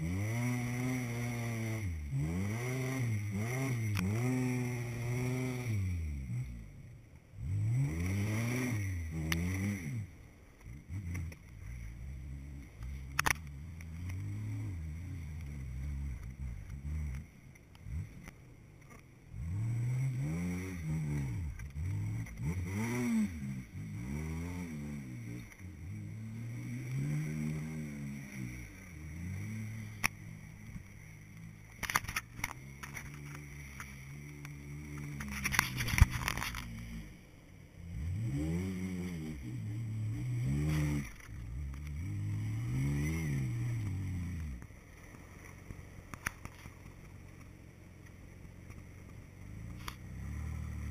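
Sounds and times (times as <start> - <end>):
vehicle engine revving: 0.0 - 50.9
knocks and scrapes: 31.7 - 37.0.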